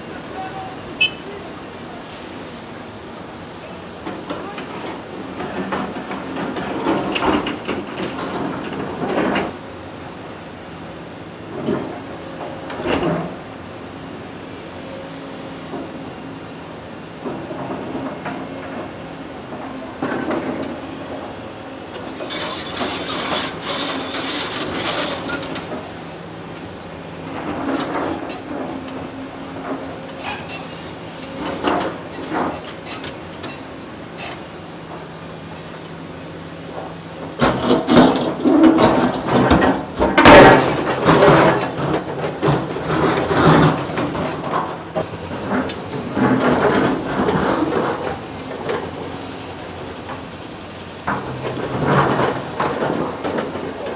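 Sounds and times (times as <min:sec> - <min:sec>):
heavy diesel machinery running: 0:00.0 - 0:53.9
metallic clatter and scraping: 0:22.0 - 0:26.0, 0:27.3 - 0:34.5, 0:36.7 - 0:49.2, 0:51.0 - 0:53.9.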